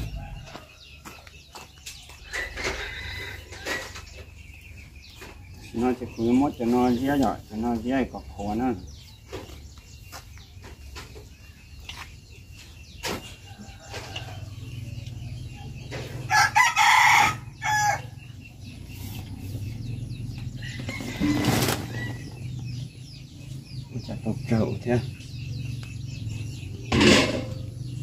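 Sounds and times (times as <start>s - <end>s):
rooster crowing: 16.3s - 18.2s.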